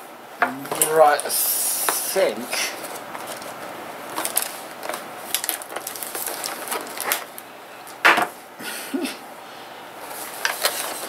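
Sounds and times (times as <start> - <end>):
toy packaging crinkling: 2.7 - 8.0
loud packaging crackle: 2.7 - 8.4, 10.0 - 11.0.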